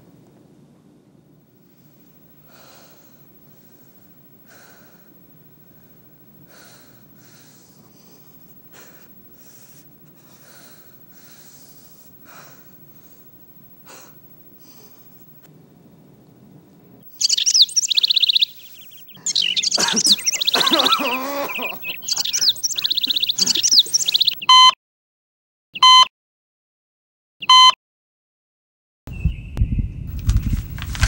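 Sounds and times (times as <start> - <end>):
steady low hum: 0.0 - 24.4
man breathing heavily in pain: 1.7 - 15.4.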